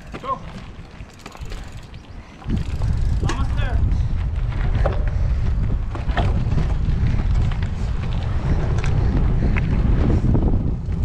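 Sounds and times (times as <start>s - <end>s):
wind rumbling on microphone: 0.0s - 11.0s.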